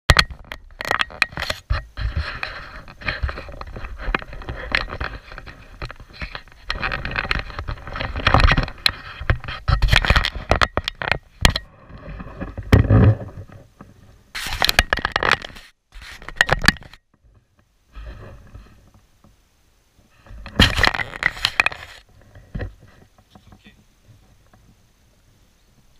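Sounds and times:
camera handling scrapes and knocks: 0:00.2 - 0:17.0, 0:20.3 - 0:23.3.

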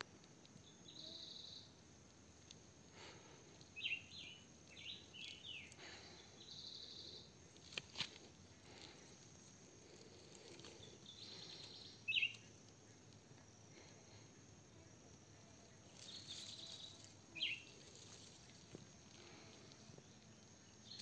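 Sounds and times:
sweeping chirping calls: 0:03.8 - 0:07.3, 0:10.8 - 0:12.6, 0:15.9 - 0:18.6.

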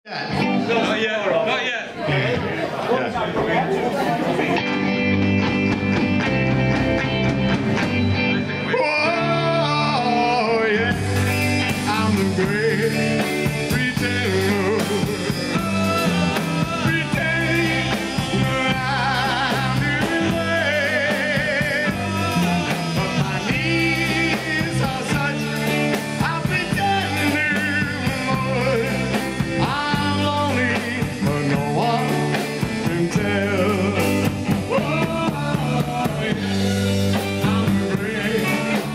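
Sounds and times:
rock band playing: 0:00.1 - 0:38.9
person singing: 0:08.3 - 0:38.9.

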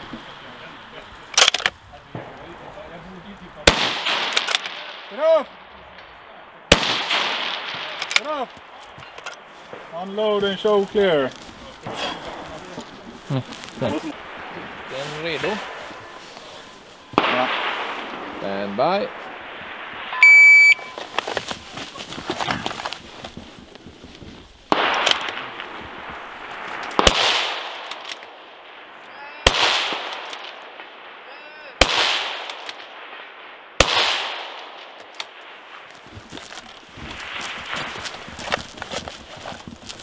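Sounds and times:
rifle shots with echo: 0:03.6 - 0:05.1, 0:06.7 - 0:08.4, 0:17.1 - 0:20.1, 0:24.7 - 0:26.1, 0:26.9 - 0:28.8, 0:29.4 - 0:31.2, 0:31.8 - 0:35.6
shot timer beep: 0:20.2 - 0:21.0
footsteps running through grass: 0:36.0 - 0:40.0.

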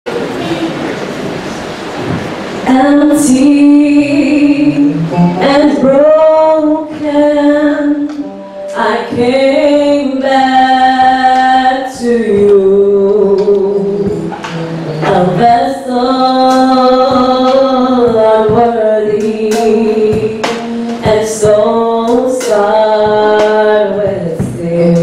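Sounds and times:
woman singing into microphone: 0:02.6 - 0:25.0
women's group singing: 0:15.0 - 0:25.0.

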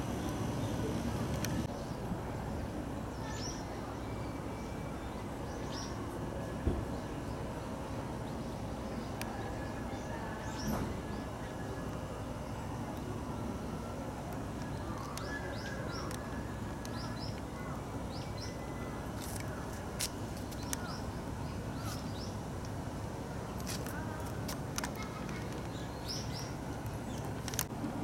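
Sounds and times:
low background noise: 0:00.0 - 0:28.0
small birds chirping: 0:14.6 - 0:27.7.

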